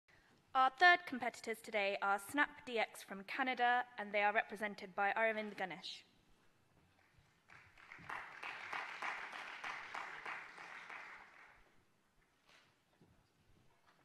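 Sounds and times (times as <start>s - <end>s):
audience applauding: 7.4s - 11.7s.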